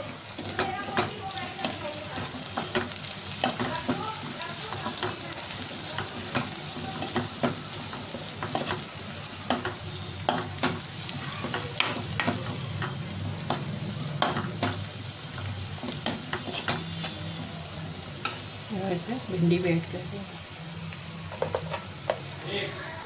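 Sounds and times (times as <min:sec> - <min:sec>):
vegetables sizzling in oil: 0:00.0 - 0:23.0
spatula scraping and knocking pan: 0:00.4 - 0:17.4.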